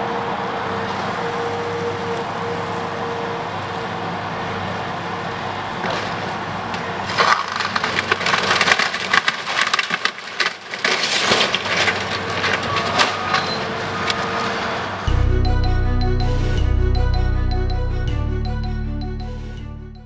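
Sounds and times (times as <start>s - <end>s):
wood cracking and splintering: 5.8s - 14.9s
music: 15.1s - 20.0s.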